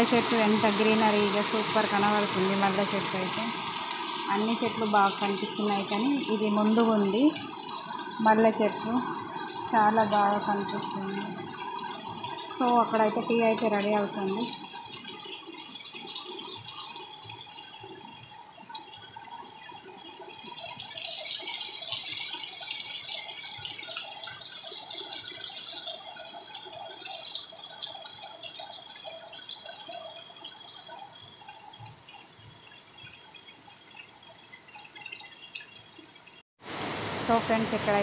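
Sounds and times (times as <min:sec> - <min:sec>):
water drips and splashes: 0:00.0 - 0:36.4
heavy rain on plants and tiles: 0:36.6 - 0:38.0.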